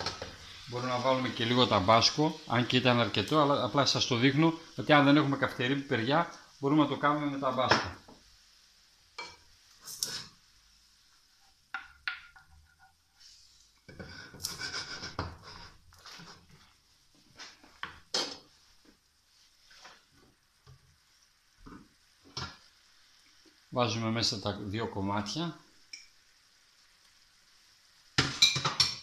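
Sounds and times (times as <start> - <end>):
utensil scraping frying pan: 0.0 - 2.2, 11.4 - 18.7.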